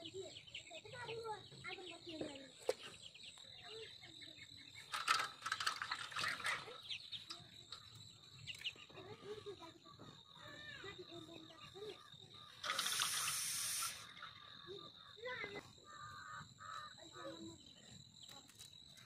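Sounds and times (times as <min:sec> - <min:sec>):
chickens clucking: 0:00.0 - 0:17.4.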